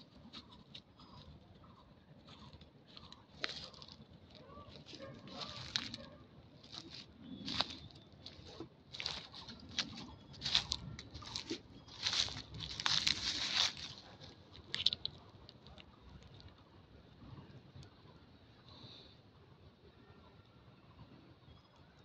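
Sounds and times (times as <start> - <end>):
footsteps on dry leaves: 2.3 - 15.0.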